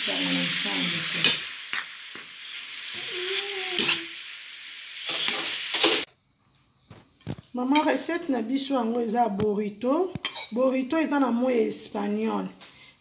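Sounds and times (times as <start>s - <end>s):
meat sizzling in a frying pan: 0.0s - 6.1s
metal spoon scraping a pan: 2.9s - 4.1s, 5.0s - 6.1s, 10.2s - 10.6s.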